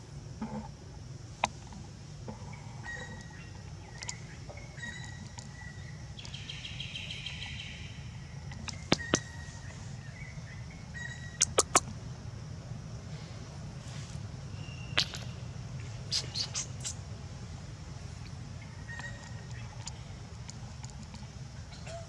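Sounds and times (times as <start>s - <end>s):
steady low hum: 0.0s - 22.0s
birds chirping: 2.4s - 12.2s, 14.4s - 22.0s
sharp clicks: 11.4s - 11.9s.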